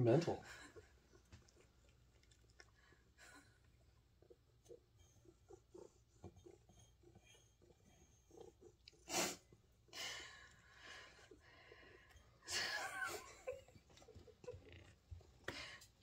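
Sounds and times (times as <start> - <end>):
cats lapping from metal bowl: 0.4 - 12.5.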